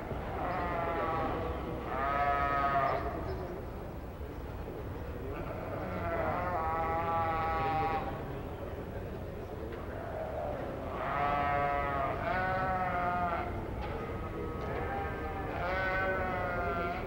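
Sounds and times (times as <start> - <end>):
sheep bleating: 0.4 - 3.2, 5.3 - 8.1, 10.2 - 13.5, 14.5 - 17.0.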